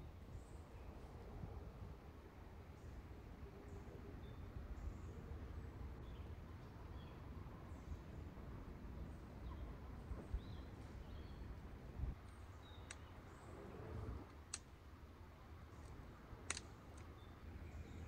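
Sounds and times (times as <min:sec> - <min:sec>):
sharp clicks: 0:14.2 - 0:14.8, 0:16.4 - 0:17.2.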